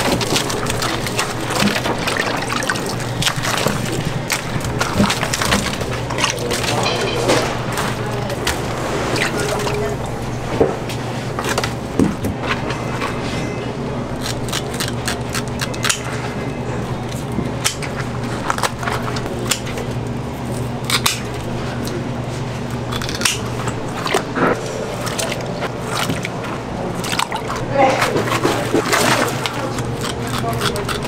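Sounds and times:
fish handling clicks and knocks: 0.0s - 9.8s
steady low hum: 0.0s - 31.0s.

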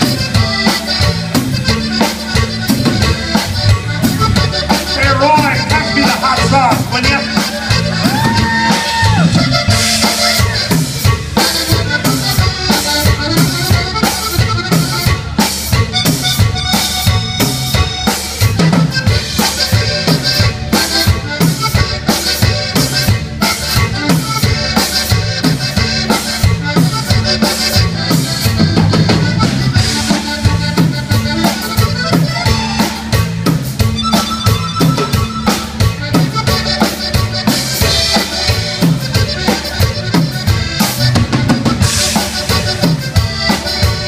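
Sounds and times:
accordion lead: 0.0s - 44.0s
drum kit: 0.0s - 44.0s
electric bass: 0.0s - 44.0s.

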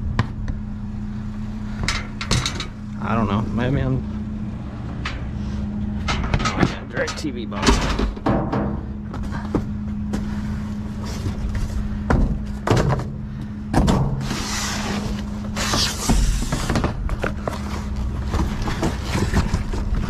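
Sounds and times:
low hum: 0.0s - 20.0s
scraping rustles: 4.0s - 20.0s
knocks: 6.0s - 9.7s
cardboard boxes dragged: 10.1s - 11.9s, 14.2s - 20.0s.

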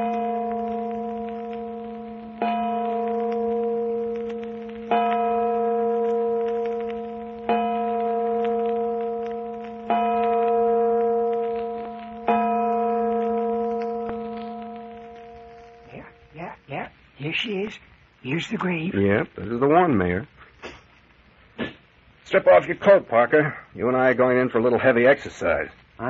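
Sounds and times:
church bell tolling: 0.0s - 16.3s.

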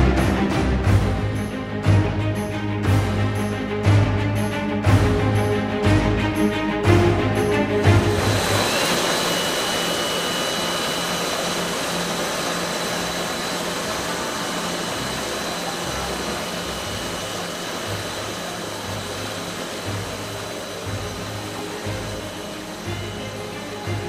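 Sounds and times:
high machine whines: 6.9s - 24.0s
machinery hiss: 7.9s - 24.0s.

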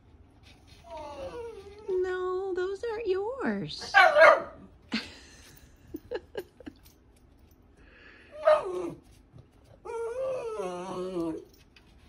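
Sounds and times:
puppy whining: 0.6s - 2.0s, 8.3s - 9.0s, 9.7s - 11.6s.

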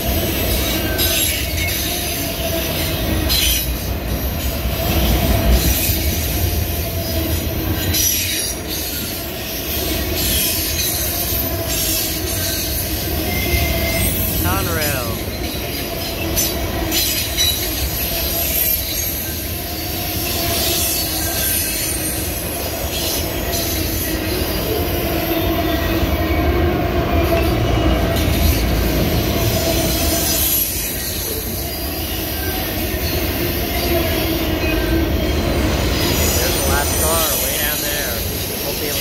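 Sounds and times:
train wheel rumble: 0.0s - 39.0s
wheel squeal: 0.3s - 14.4s, 15.4s - 26.4s.

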